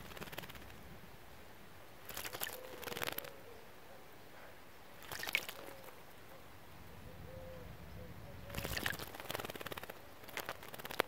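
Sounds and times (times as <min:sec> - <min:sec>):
bird splashing in birdbath: 0:02.0 - 0:03.3, 0:05.0 - 0:06.0, 0:08.5 - 0:11.0.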